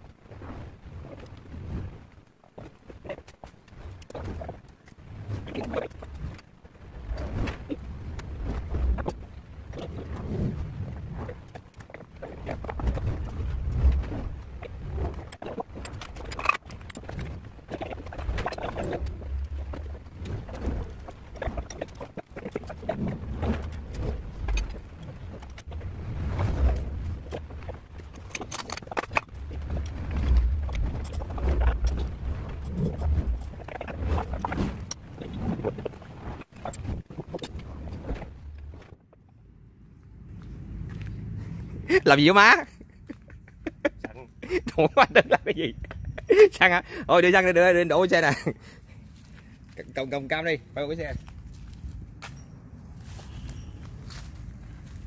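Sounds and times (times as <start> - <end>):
low steady hum: 0.0 - 55.0
low rumble: 12.4 - 42.0
metal parts and tools clinking: 15.3 - 17.3, 28.0 - 32.0.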